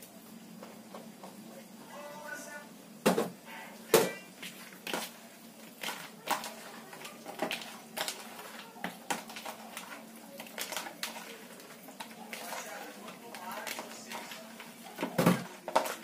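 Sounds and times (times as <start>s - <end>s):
plastic containers tapping: 5.8s - 11.2s, 11.8s - 16.0s.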